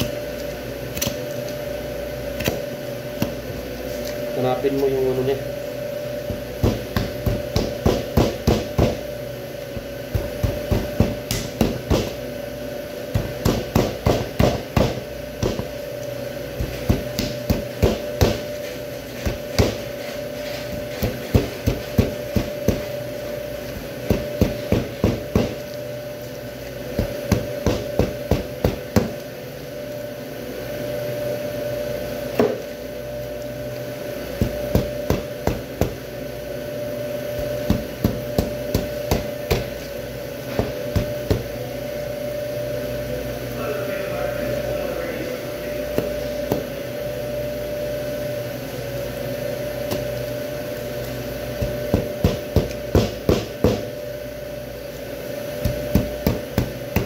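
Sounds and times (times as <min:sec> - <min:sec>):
steady hum: 0:00.0 - 0:57.0
knife chopping bones: 0:06.3 - 0:09.1, 0:09.8 - 0:12.2, 0:13.1 - 0:15.7, 0:16.6 - 0:18.6, 0:19.2 - 0:19.8, 0:20.7 - 0:23.0, 0:24.0 - 0:25.6, 0:27.0 - 0:29.2, 0:34.4 - 0:36.0, 0:37.4 - 0:39.7, 0:40.5 - 0:41.5, 0:51.6 - 0:53.9, 0:55.6 - 0:57.0.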